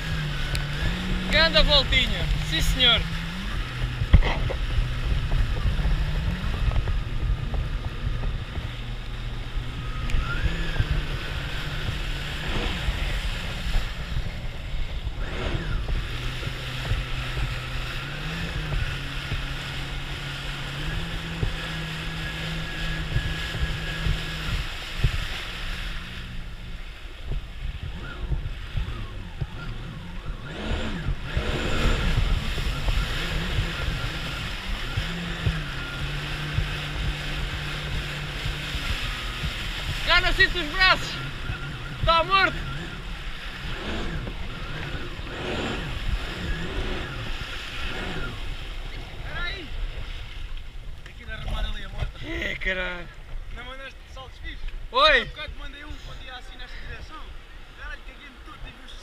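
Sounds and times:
personal watercraft engine: 0:00.0 - 0:59.0
rush of spray and wind: 0:00.0 - 0:59.0.

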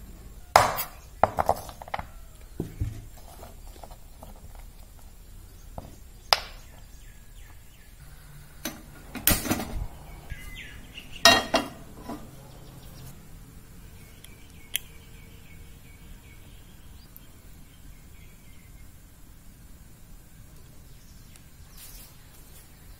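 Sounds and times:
cookware knocks and clinks: 0:11.2 - 0:12.3.

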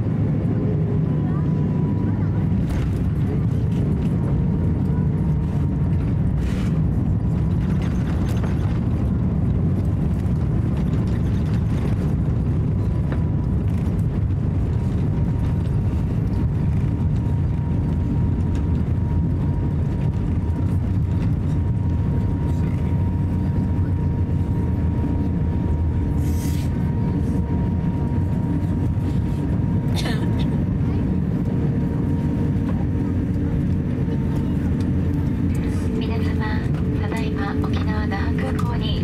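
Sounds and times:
aircraft cabin rumble: 0:00.0 - 0:39.0.

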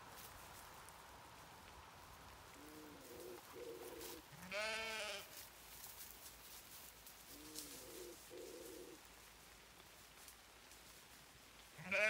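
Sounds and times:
sheep bleating: 0:04.3 - 0:05.3, 0:11.8 - 0:12.0.

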